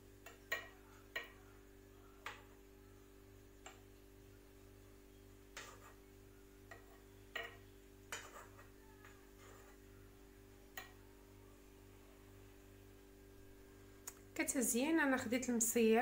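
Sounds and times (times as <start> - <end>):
faint steady hum: 0.0 - 16.0
metal spoon clinking on dishes: 0.2 - 1.4, 6.7 - 8.7.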